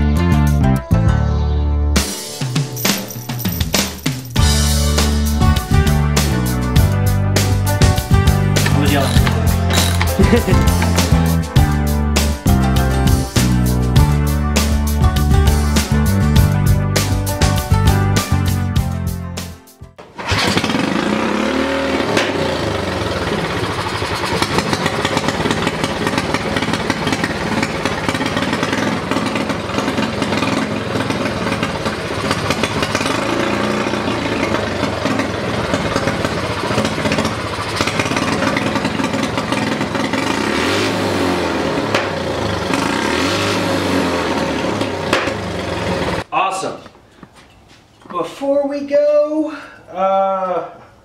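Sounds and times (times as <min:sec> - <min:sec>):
small engine running and revving: 0:08.6 - 0:11.1, 0:20.1 - 0:46.2.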